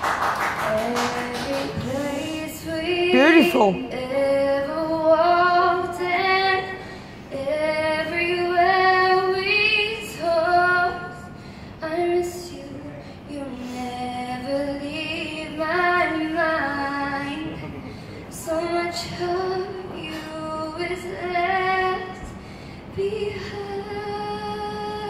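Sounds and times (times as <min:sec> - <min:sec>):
woman singing: 0:00.6 - 0:17.6, 0:18.3 - 0:22.3, 0:22.9 - 0:25.0.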